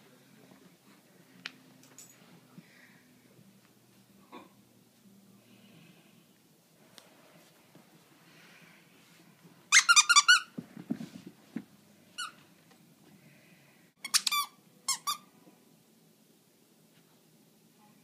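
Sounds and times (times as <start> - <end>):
squeaker toy squeaking: 9.7 - 10.5, 14.0 - 15.3
dull low thumps on rug: 10.6 - 11.7.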